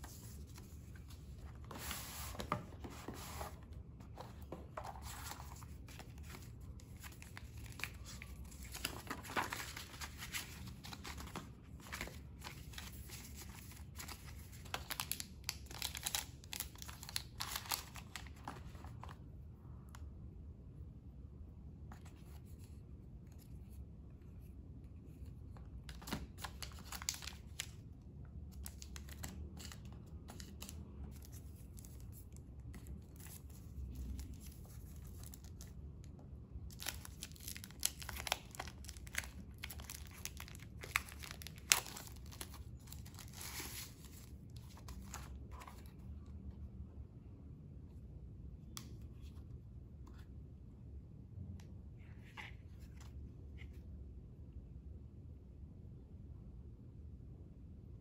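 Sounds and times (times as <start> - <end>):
plastic bags crinkling: 36.8 - 43.8.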